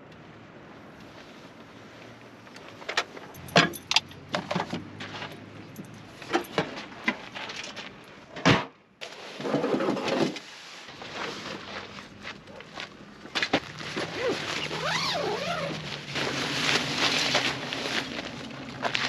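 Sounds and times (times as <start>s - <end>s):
camping gear knocking and clattering: 2.5s - 8.7s
fabric bag scraping out: 13.8s - 19.0s.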